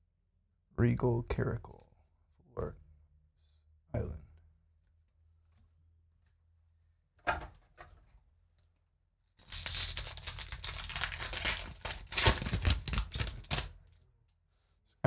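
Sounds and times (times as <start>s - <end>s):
foil wrapper crinkling: 9.4s - 13.8s.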